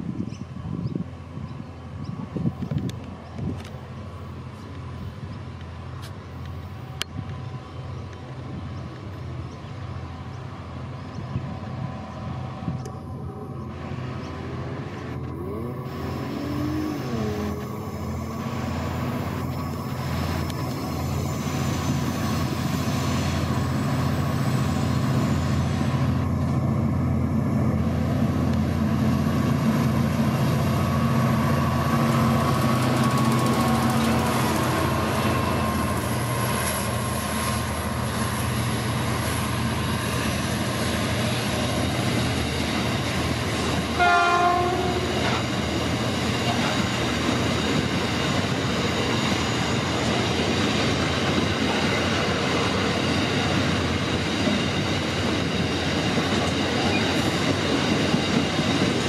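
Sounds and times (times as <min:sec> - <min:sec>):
locomotive engines droning: 0:00.0 - 0:59.0
high-pitched tone: 0:15.3 - 0:20.0.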